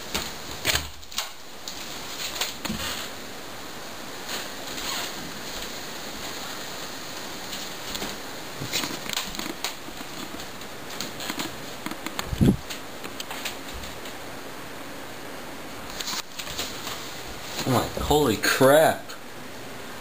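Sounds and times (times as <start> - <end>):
camcorder microphone hiss: 0.0 - 20.0
camera handling clicks and bumps: 11.2 - 13.3.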